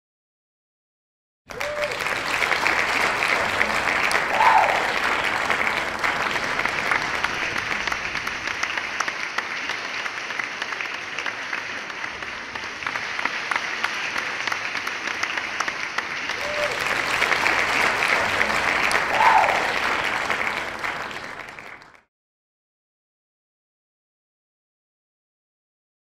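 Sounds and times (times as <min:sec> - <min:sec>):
crowd shout: 0:01.5 - 0:07.3, 0:16.4 - 0:21.4
audience applauding: 0:01.5 - 0:22.1.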